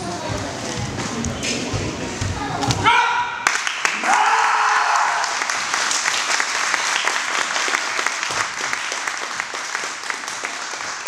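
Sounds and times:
spectators applauding: 0:03.4 - 0:11.0.

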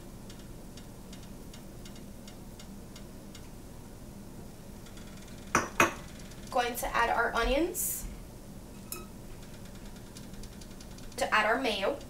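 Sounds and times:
low background hum: 0:00.0 - 0:12.0
faint regular ticking: 0:00.2 - 0:03.6, 0:04.8 - 0:06.6, 0:09.4 - 0:12.0.

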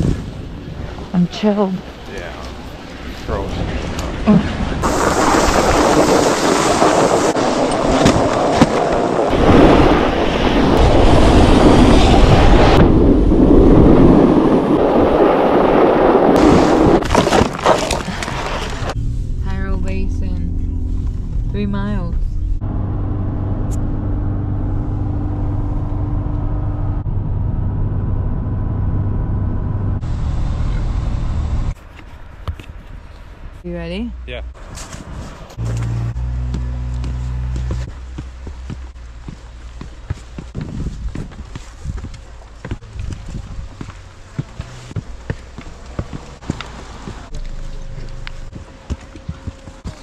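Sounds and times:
wind buffeting microphone: 0:00.0 - 0:17.0, 0:37.8 - 0:50.0
snowboard scraping on snow: 0:04.5 - 0:12.8
road and engine rumble in truck cab: 0:17.8 - 0:50.0.

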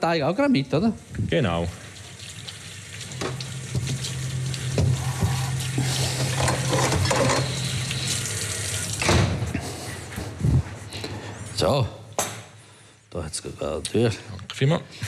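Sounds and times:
refrigerator hum: 0:01.0 - 0:12.0.

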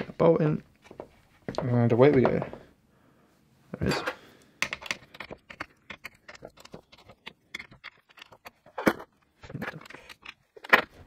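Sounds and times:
clicks and knocks of parts fitted: 0:04.6 - 0:11.0.

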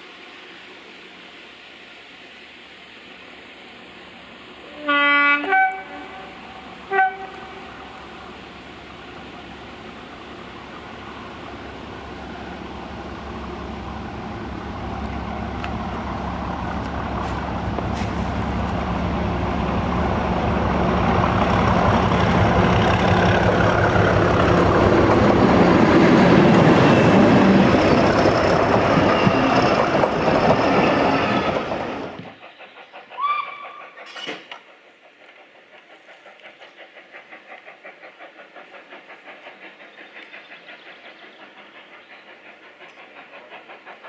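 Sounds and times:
diesel locomotive engine under power: 0:00.0 - 0:44.0.

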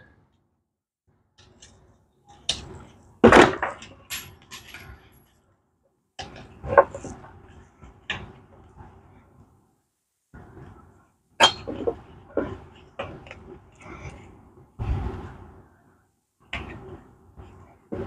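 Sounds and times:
metal clanks of tools: 0:01.4 - 0:05.0, 0:11.4 - 0:13.4.

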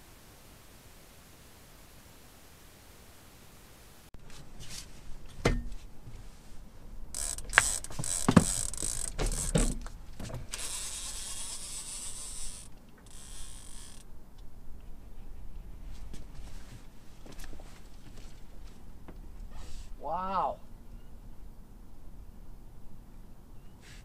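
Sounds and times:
fishing reel whirring: 0:07.1 - 0:09.8, 0:10.5 - 0:14.1
fishing rod knocks and clicks: 0:07.2 - 0:11.6.

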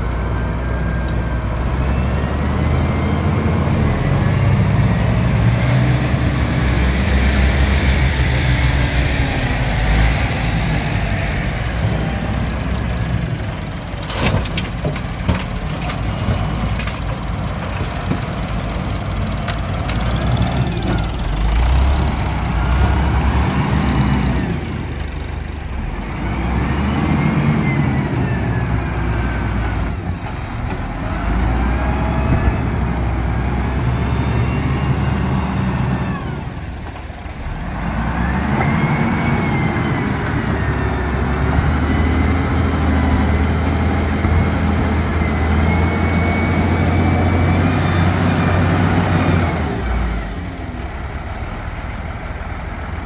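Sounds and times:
heavy vehicle engine revving: 0:00.0 - 0:53.0.

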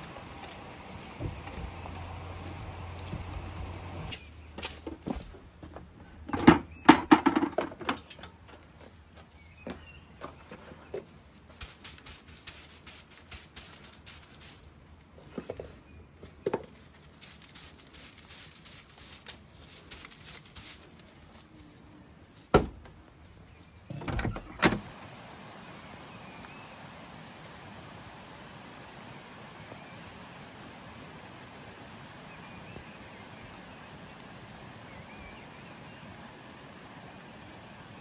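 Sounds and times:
rain hissing: 0:00.0 - 0:04.2, 0:11.5 - 0:15.0, 0:16.8 - 0:21.6, 0:24.8 - 0:38.0
twig broom scratching: 0:10.6 - 0:22.5.

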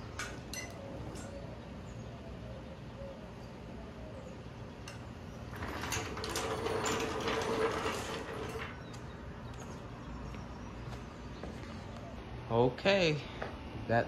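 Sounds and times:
jack wheels squeaking: 0:04.9 - 0:09.2
floor jack rolling on concrete: 0:05.5 - 0:09.1.

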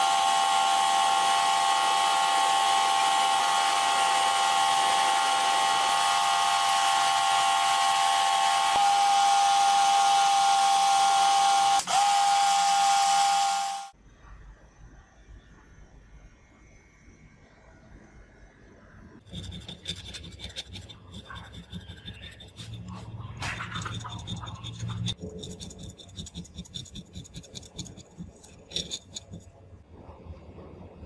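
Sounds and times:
metal blade scraping metal: 0:19.2 - 0:29.5.

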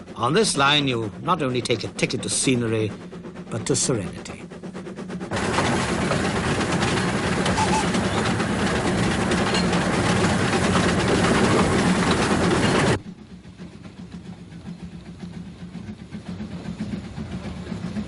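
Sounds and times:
steam locomotive running: 0:00.0 - 0:18.0.

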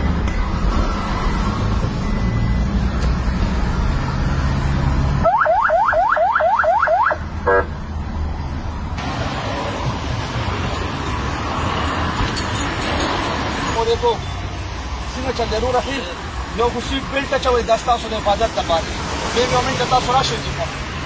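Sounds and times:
traffic noise: 0:00.0 - 0:21.0
vehicle engine rumble: 0:00.0 - 0:21.0
police siren whooping: 0:05.2 - 0:07.7
siren buzzing blast: 0:05.2 - 0:07.8.

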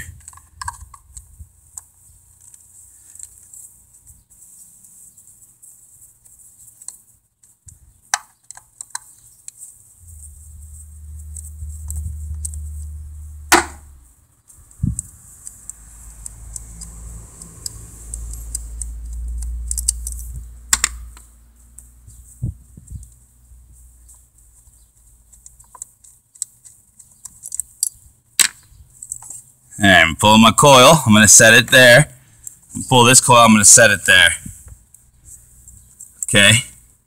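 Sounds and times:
low rumble: 0:10.0 - 0:20.7.

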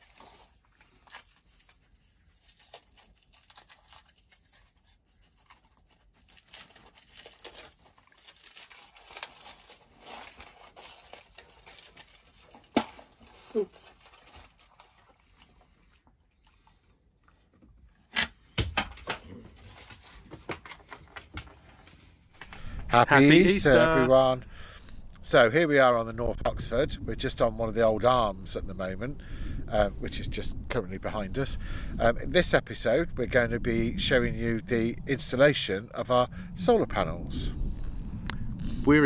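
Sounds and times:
foil wrapper crinkling and tearing: 0:00.0 - 0:16.7, 0:19.3 - 0:22.2.

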